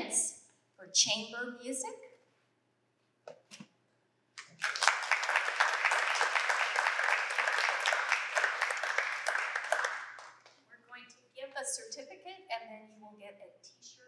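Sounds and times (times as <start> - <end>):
audience applauding: 4.4 - 10.5.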